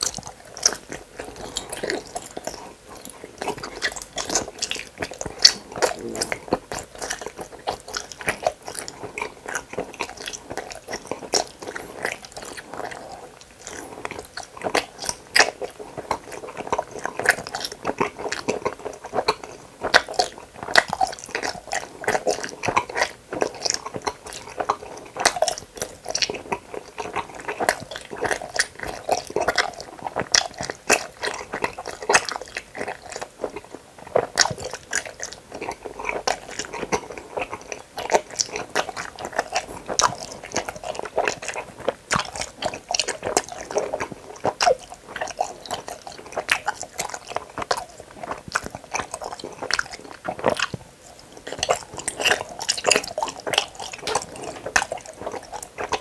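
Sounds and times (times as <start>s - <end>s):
chewing sticky candy: 0.0s - 56.0s.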